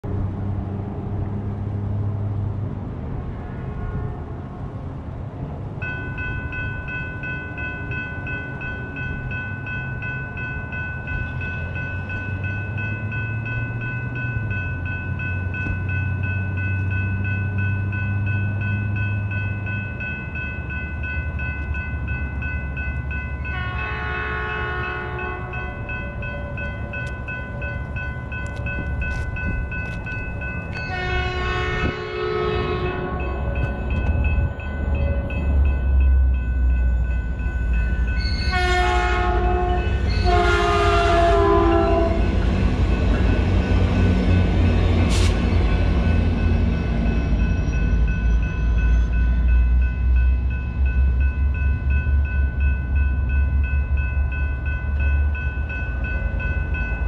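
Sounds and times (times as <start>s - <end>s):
low rumble of train engines: 0.0s - 57.0s
railroad crossing bells ringing: 5.7s - 57.0s
train horn: 23.5s - 25.7s, 30.8s - 33.7s, 38.4s - 42.3s.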